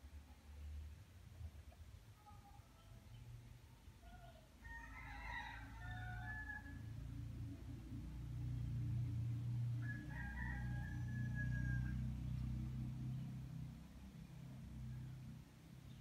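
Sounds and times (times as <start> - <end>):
rooster crowing: 4.6 - 7.0, 9.8 - 12.2.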